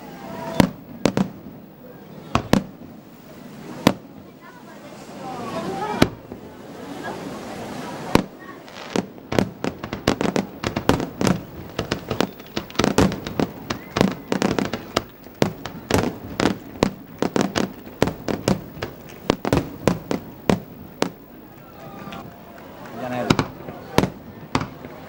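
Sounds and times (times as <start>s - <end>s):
fireworks shell bangs: 9.0s - 21.2s.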